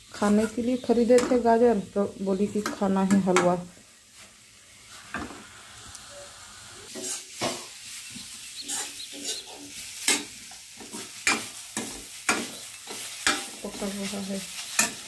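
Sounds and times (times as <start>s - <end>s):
food sizzling: 0.0s - 15.0s
metal ladle scraping a pan: 6.9s - 7.7s, 8.6s - 13.8s.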